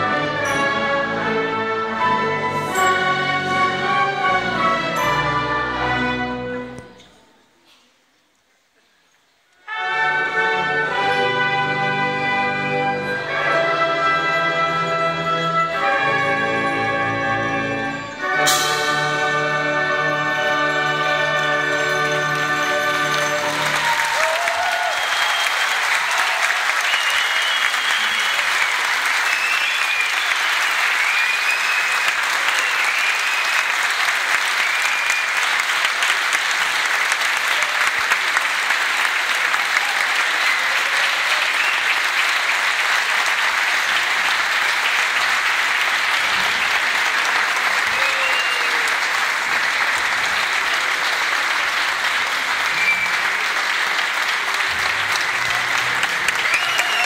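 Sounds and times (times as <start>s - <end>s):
audience applauding: 19.8s - 57.0s.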